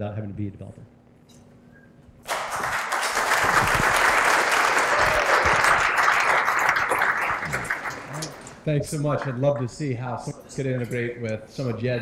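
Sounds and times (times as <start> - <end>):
audience applauding: 2.2 - 8.6.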